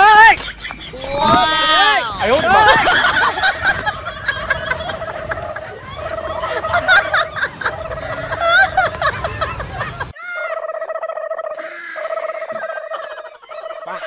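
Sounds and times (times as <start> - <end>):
warbling gobble-like sound effect: 10.4 - 14.0.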